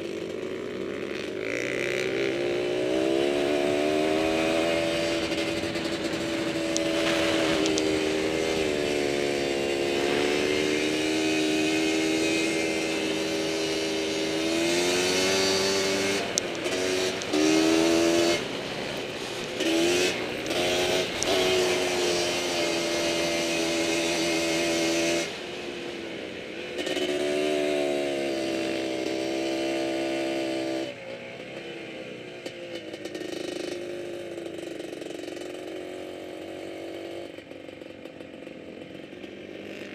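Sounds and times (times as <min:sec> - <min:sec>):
atv engine revving: 0:00.0 - 0:39.9.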